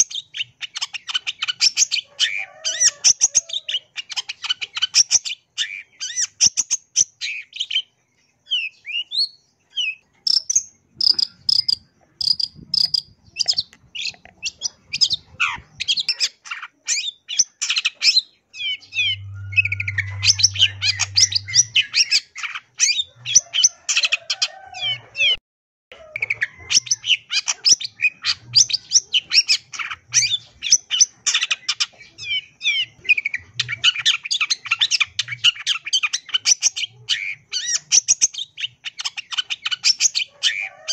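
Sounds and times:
shrike singing chattering song: 9.8 - 23.8
low hum: 19.0 - 22.0.

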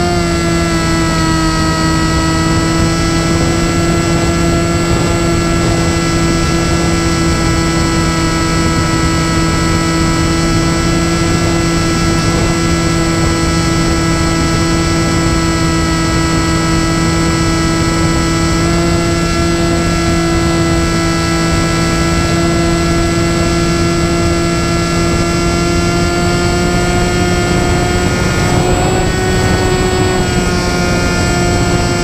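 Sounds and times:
propeller motor droning whine: 0.0 - 32.0
wind rushing: 20.4 - 32.0.

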